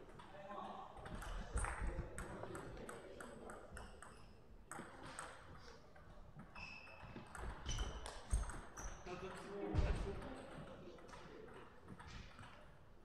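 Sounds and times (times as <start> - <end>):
shoe squeaks: 6.5 - 9.1.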